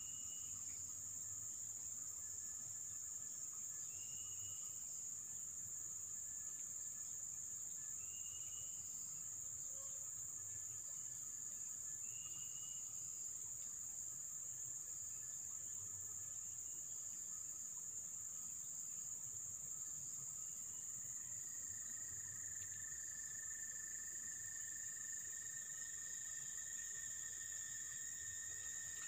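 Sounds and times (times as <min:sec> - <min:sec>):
insects chirring: 0:00.0 - 0:29.0.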